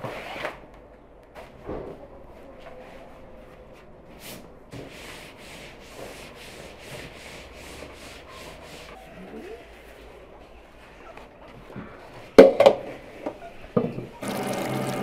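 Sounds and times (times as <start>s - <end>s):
cloth rubbing on vinyl tablecloth: 4.2s - 11.1s.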